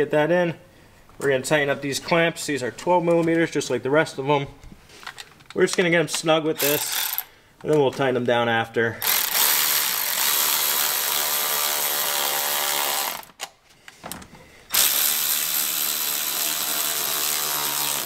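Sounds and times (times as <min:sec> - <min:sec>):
ratchet clicks: 0:06.6 - 0:07.3
electric ratchet motor whine: 0:14.7 - 0:18.0.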